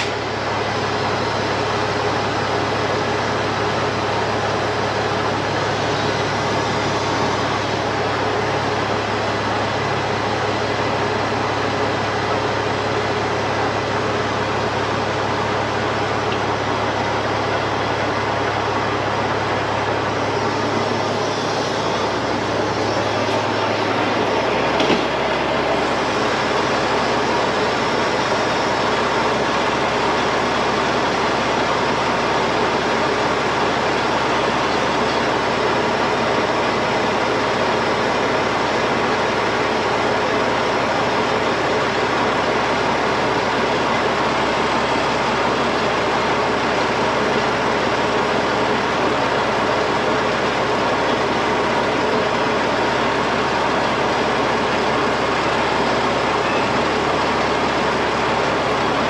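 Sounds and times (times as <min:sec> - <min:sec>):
heavy diesel machinery running: 0:00.0 - 0:59.0.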